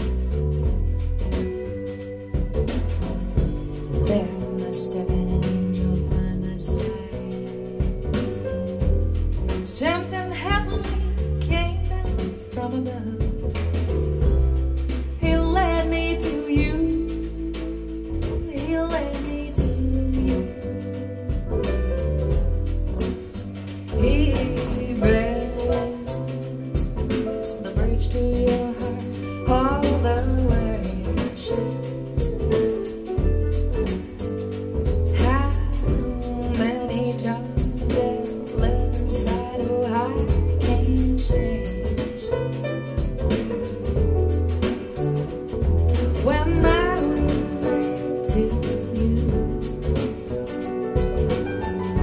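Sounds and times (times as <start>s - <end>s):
jazz-pop band with deep bass: 0.0s - 52.0s
woman singing: 3.9s - 8.2s, 9.6s - 13.5s, 15.2s - 21.3s, 23.9s - 31.9s, 35.1s - 42.6s, 46.1s - 50.3s.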